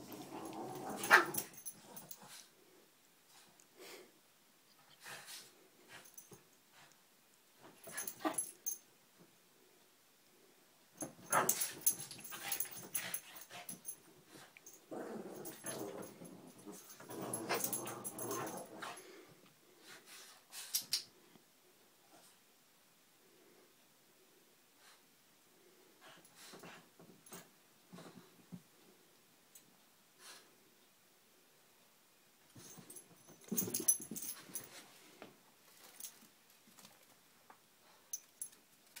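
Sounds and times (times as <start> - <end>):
dogs play-growling: 0.0 - 2.4, 14.9 - 19.1
dogs playing: 0.0 - 2.5, 7.6 - 8.8, 11.0 - 19.2, 32.5 - 34.8.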